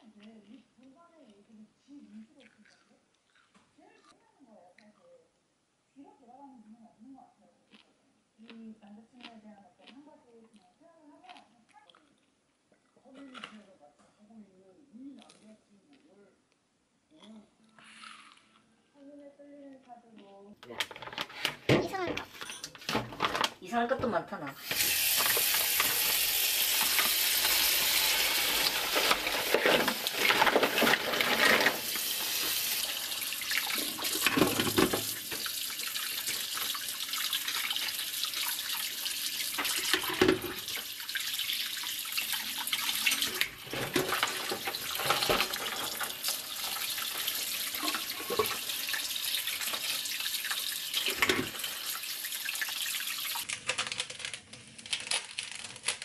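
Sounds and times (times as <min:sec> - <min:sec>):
tap running into plastic bowl: 0:22.9 - 0:27.7, 0:33.5 - 0:35.6, 0:39.5 - 0:40.9, 0:51.0 - 0:51.7.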